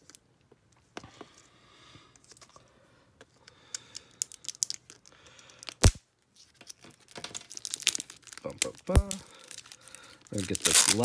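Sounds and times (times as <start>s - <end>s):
plastic wrapper crinkling: 3.9s - 11.0s.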